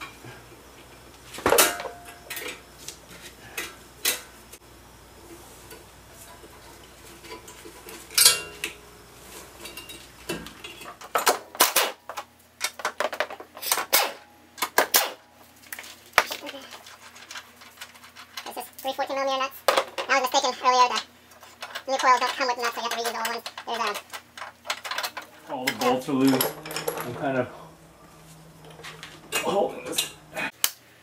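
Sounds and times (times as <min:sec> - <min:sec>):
metallic clinks of tools: 0:25.7 - 0:30.3.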